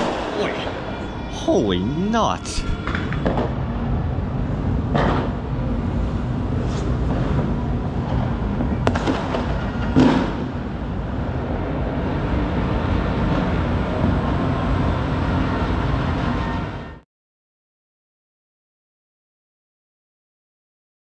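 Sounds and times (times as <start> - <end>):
rumble of distant fireworks: 0.0 - 16.8.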